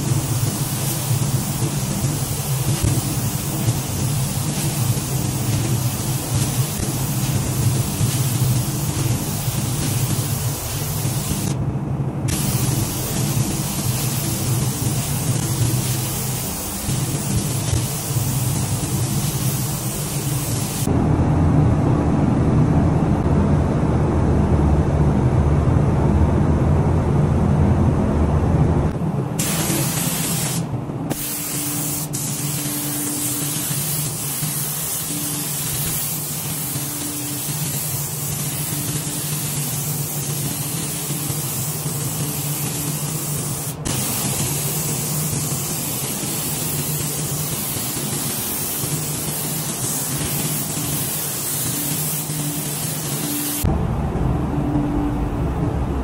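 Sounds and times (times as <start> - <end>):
spray gun air hiss: 0.0 - 11.6, 12.3 - 20.9, 29.4 - 53.7
low hum: 0.3 - 36.8, 52.0 - 56.0.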